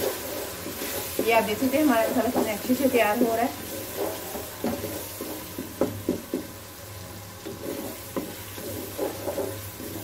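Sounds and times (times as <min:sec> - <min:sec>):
spatula scraping a pot: 0:00.0 - 0:06.2, 0:07.4 - 0:10.0
food sizzling in oil: 0:00.0 - 0:10.0
spatula knocking on pot: 0:04.0 - 0:06.6.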